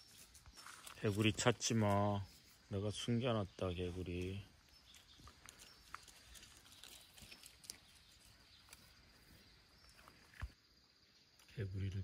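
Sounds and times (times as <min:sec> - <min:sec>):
dog rustling through brush: 0:04.8 - 0:09.2.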